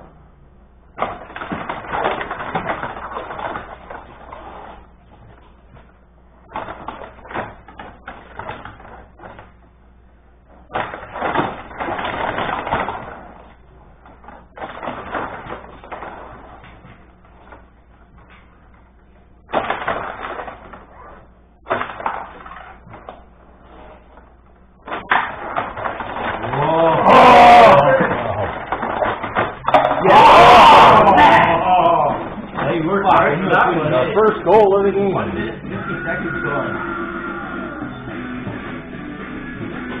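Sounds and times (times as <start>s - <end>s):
puck clattering against players: 1.0s - 9.5s, 10.7s - 18.5s, 24.8s - 35.1s.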